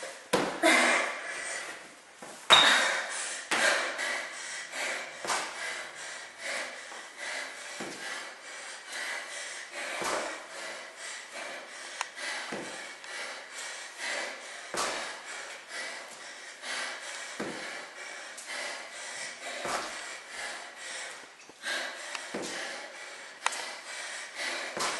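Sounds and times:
hard rhythmic breathing: 0.0 - 24.9
footsteps thumping on tile floor: 10.0 - 10.4, 12.5 - 12.8, 14.7 - 15.1, 17.4 - 17.8, 22.2 - 22.7.

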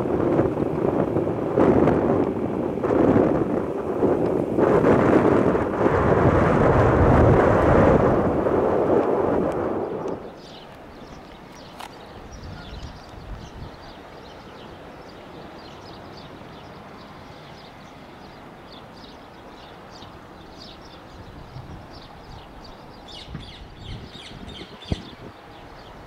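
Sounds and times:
distant jet engines rumbling: 0.0 - 26.0
birds chirping: 9.8 - 26.0.

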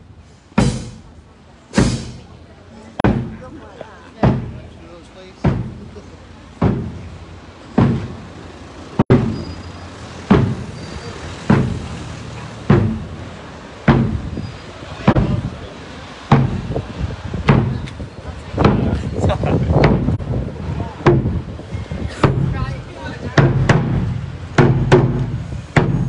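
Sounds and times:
marching bass drum thumps: 0.6 - 1.2, 1.8 - 2.3, 3.0 - 3.5, 4.2 - 4.8, 5.4 - 7.2, 7.8 - 8.4, 9.0 - 9.5, 10.2 - 10.8, 11.4 - 12.0, 12.6 - 15.6, 16.3 - 26.0.

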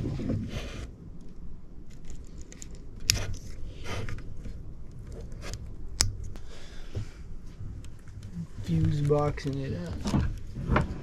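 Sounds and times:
light rustling and ticking: 7.6 - 10.8.

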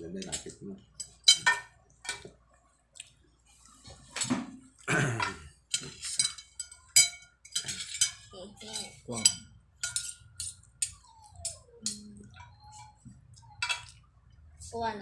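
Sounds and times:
cutlery clinking on plate: 0.2 - 2.3, 5.2 - 14.0.

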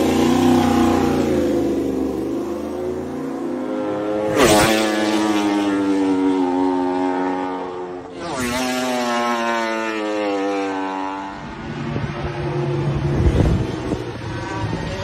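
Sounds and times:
racing motorcycle engine high revs: 0.0 - 15.0
wind gusts: 11.4 - 15.0.

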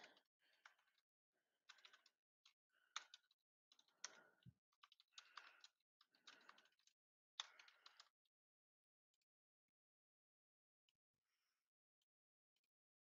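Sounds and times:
faint keyboard typing: 0.0 - 9.2.

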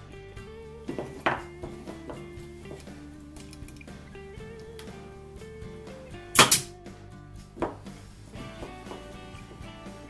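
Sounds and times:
background music: 0.0 - 10.0
nail gun firing into wood: 6.4 - 6.7.

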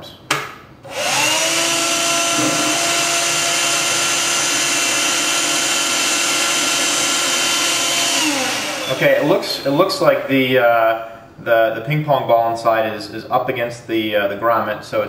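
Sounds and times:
handheld vacuum whining: 0.8 - 10.3
vacuum sucking water: 0.9 - 10.3.

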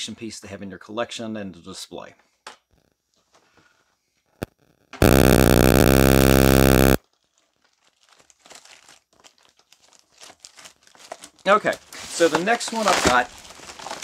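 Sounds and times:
loud steady buzz: 5.0 - 7.0
packaging crinkling: 7.1 - 14.0.

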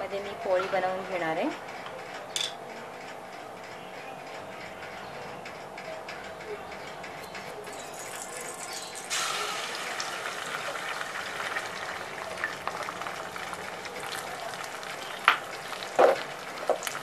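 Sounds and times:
eggs sizzling in hot oil: 8.0 - 17.0.

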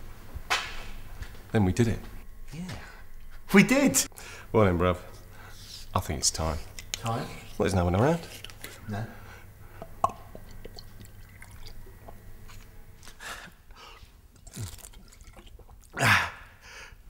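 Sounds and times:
swallowing and liquid sounds: 8.2 - 16.6.

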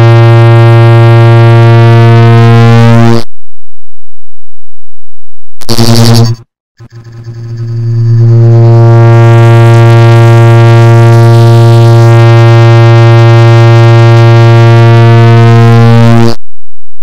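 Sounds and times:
loud electronic buzzing tone: 0.0 - 3.3, 5.5 - 17.0.

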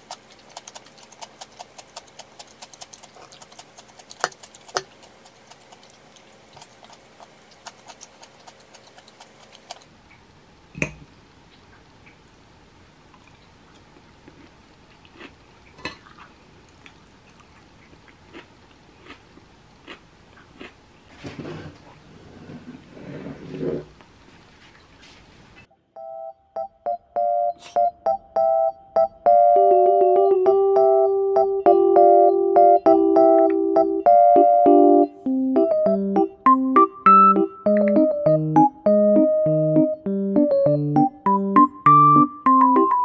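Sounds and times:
fork scraping ceramic bowl: 0.0 - 6.0
chewing clicks: 0.0 - 9.9.

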